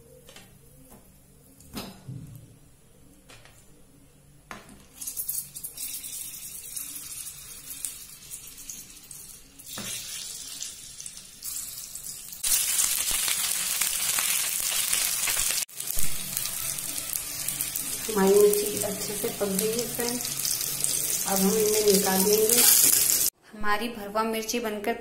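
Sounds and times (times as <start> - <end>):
chillies sizzling in hot oil: 5.0 - 23.4.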